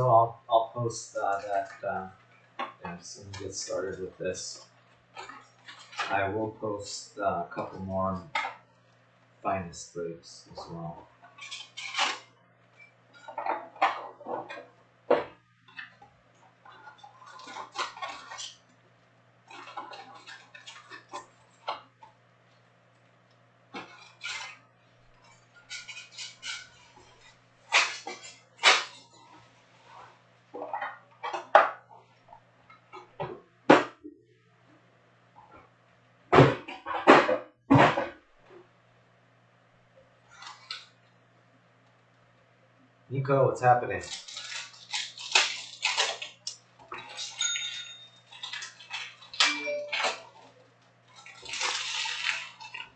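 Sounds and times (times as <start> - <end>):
steady low hum: 0.0 - 47.0
packs rustling and crinkling: 48.3 - 52.9.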